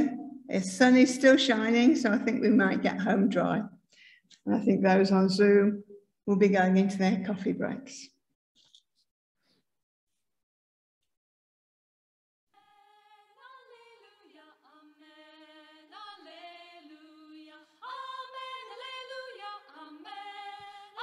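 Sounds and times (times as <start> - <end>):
choir singing unaccompanied: 12.6 - 21.0.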